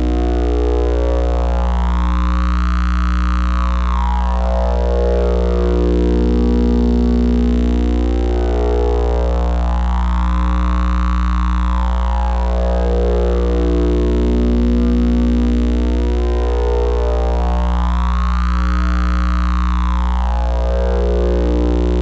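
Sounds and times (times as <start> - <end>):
electronic drone low hum: 0.0 - 22.0
sustained electronic tones: 21.1 - 22.0.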